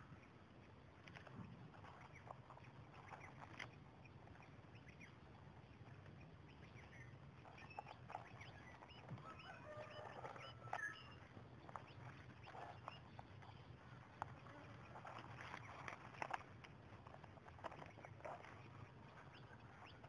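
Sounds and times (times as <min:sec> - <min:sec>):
low steady hum: 0:00.0 - 0:20.0
birds chirping and calling: 0:01.4 - 0:16.5.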